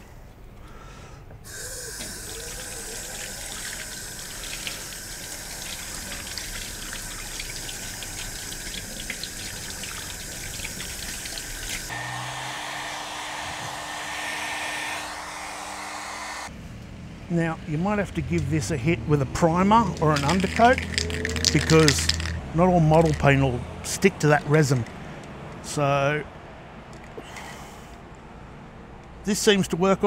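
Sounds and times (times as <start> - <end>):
tap water running into sink: 1.5 - 11.9
steady whir with high whine: 11.9 - 16.5.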